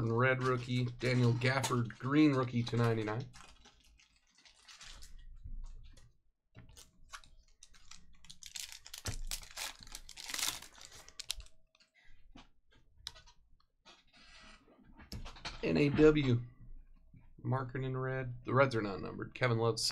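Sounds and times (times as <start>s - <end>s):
trading cards clicking and rustling: 6.7s - 11.5s.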